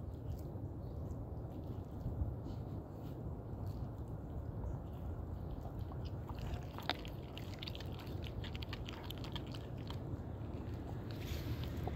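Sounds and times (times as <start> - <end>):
steady low rumble: 0.0 - 11.9
dog chewing raw chicken: 5.4 - 11.9.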